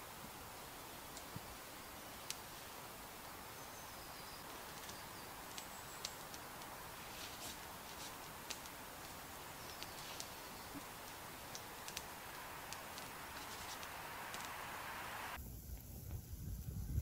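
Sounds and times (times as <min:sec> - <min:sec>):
campfire crackling and popping: 0:00.0 - 0:15.4
steady low hiss: 0:00.0 - 0:17.0
high whistling notes: 0:09.3 - 0:15.4.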